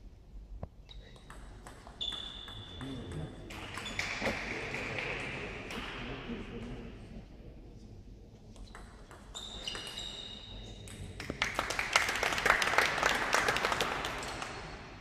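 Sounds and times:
table tennis ball strikes: 1.2s - 6.1s
spectators clapping: 11.2s - 15.0s.

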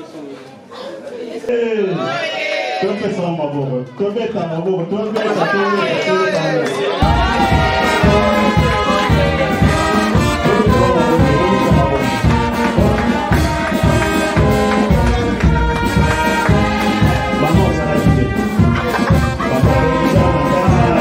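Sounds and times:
brass band music: 7.0s - 21.0s.

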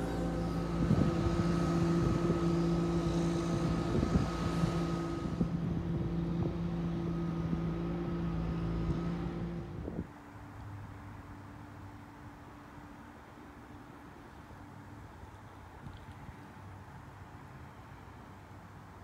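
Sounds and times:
wind buffeting microphone: 0.0s - 10.1s
steady motor hum: 0.0s - 16.0s.

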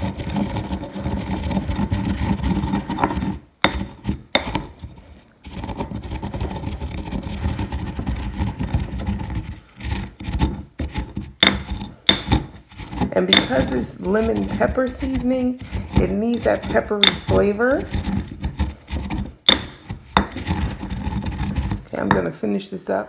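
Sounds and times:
pestle grinding in mortar: 0.0s - 22.4s
sharp knocks: 11.4s - 12.6s, 19.4s - 20.4s.

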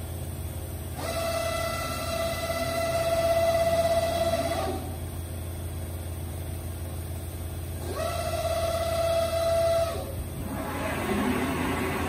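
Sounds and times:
cnc router humming: 7.9s - 12.0s
drives whining: 10.3s - 12.0s.

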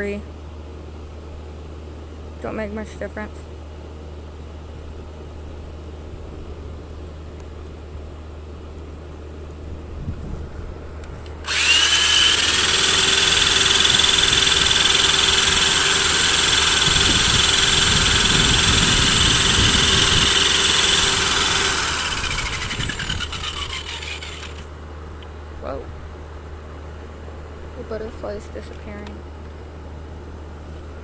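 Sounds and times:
cordless drill whining: 11.4s - 24.7s.

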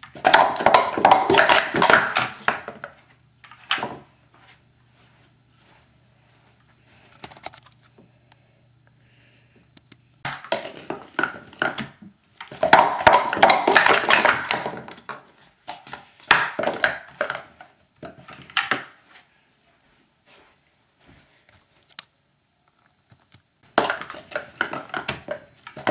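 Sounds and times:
plastic cups clattering: 0.0s - 4.1s, 10.3s - 19.0s, 23.6s - 25.9s.

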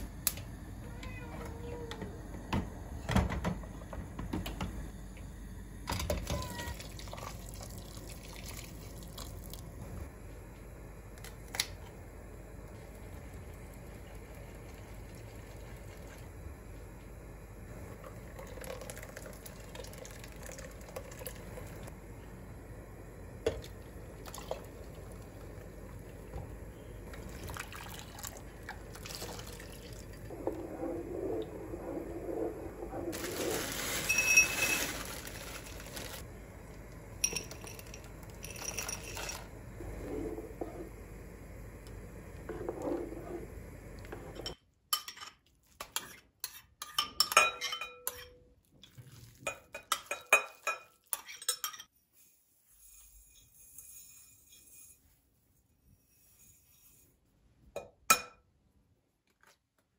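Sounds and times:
steady low hum: 20.0s - 33.5s, 35.6s - 44.6s
soup sloshing and stirring: 27.1s - 36.3s.

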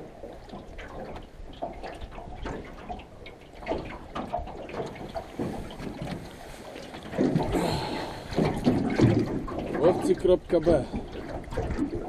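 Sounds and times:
water splashing and dripping: 0.0s - 12.0s.

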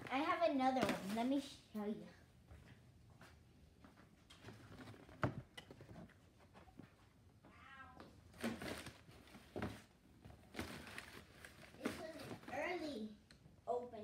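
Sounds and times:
cat meowing: 7.4s - 8.1s
rustling: 8.3s - 12.8s.

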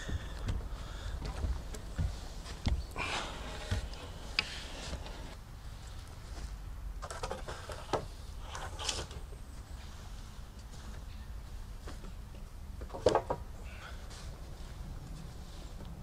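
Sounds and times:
wood scraping against wood: 0.1s - 5.4s.

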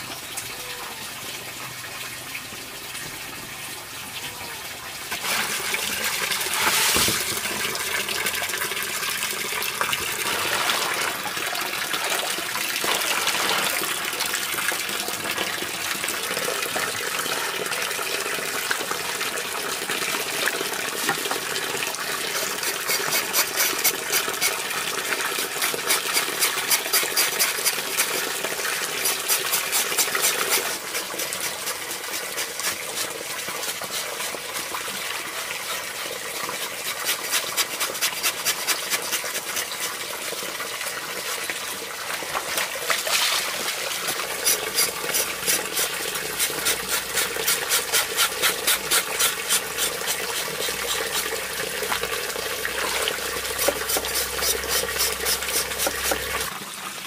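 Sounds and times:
water running and splashing: 0.0s - 57.0s
quick rhythmic short strokes: 44.4s - 51.3s, 53.6s - 56.4s.

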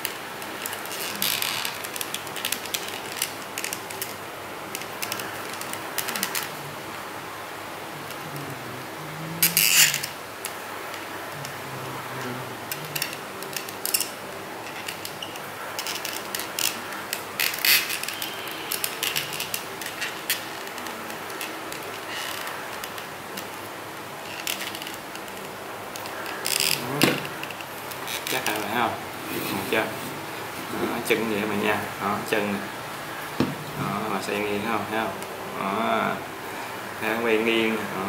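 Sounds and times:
plastic toy parts clicking: 9.4s - 11.6s, 12.7s - 23.7s.

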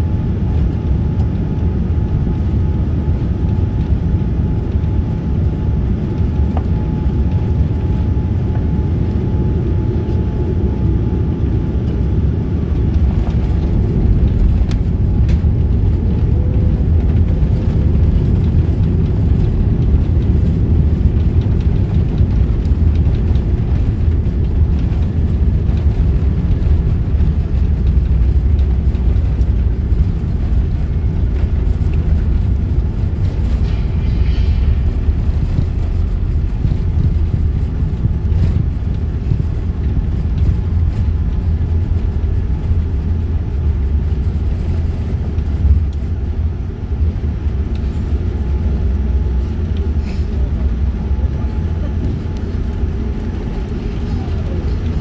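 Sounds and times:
aircraft cabin engine rumble: 0.0s - 55.0s
wheels rolling on runway: 11.8s - 55.0s.

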